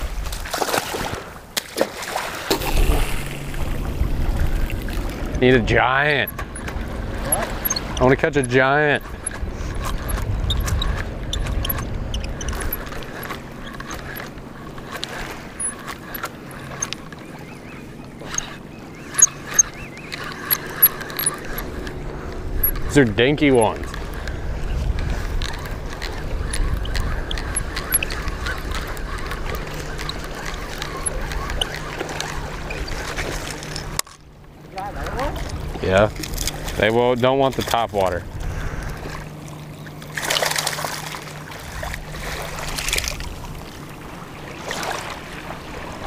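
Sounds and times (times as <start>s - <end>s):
water washing in shallows: 0.0s - 46.0s
wind buffeting microphone: 2.5s - 46.0s
fishing reel clicks and taps: 18.0s - 22.9s, 25.0s - 34.2s.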